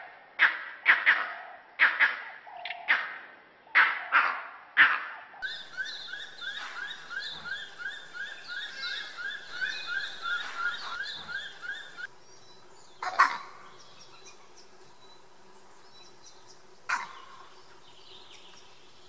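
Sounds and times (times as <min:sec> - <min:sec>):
loud animal calls: 0:03.8 - 0:12.1, 0:13.0 - 0:13.6, 0:16.9 - 0:17.5.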